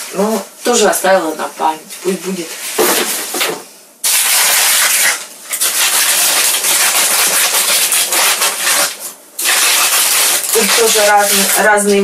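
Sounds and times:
rustling and rubbing of objects: 0.0 - 12.0.

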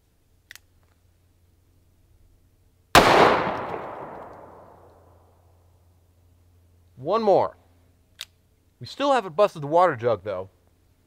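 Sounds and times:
revolver shot with echo: 3.0 - 4.9.

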